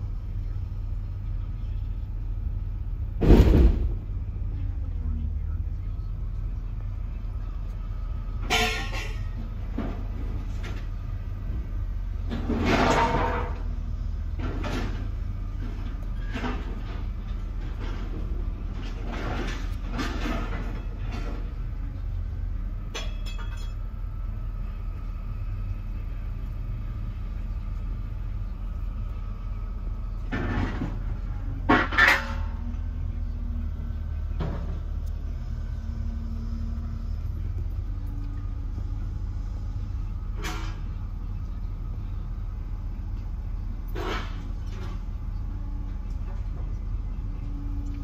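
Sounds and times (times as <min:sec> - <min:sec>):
heavy machinery engine rumble: 0:00.0 - 0:48.0
steel knocks and clanks: 0:12.2 - 0:13.7, 0:22.9 - 0:23.8, 0:30.3 - 0:32.8.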